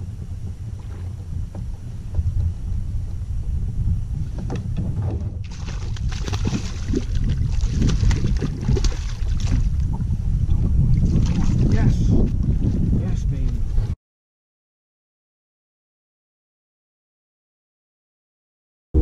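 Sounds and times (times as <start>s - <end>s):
water splashing and sloshing: 0.0s - 3.6s, 4.2s - 12.7s
water lapping against kayak hull: 0.0s - 12.8s
wind buffeting microphone: 0.0s - 14.0s.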